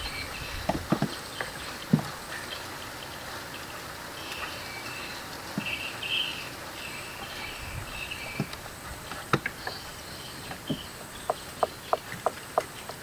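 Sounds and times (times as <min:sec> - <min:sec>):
sharp clicks and knocks: 0:00.7 - 0:02.1, 0:08.4 - 0:09.8, 0:10.5 - 0:13.0.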